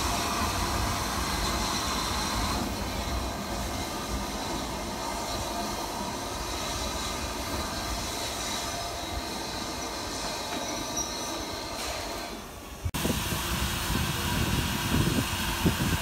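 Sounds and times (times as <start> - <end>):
train wheels rumbling on rails: 0.0 - 16.0
faint high squeal: 1.3 - 12.4.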